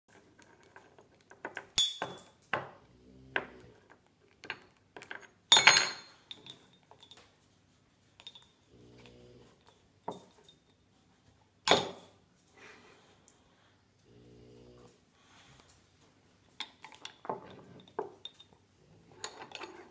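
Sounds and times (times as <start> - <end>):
teaspoon clinking on mug and table: 8.2 - 8.6.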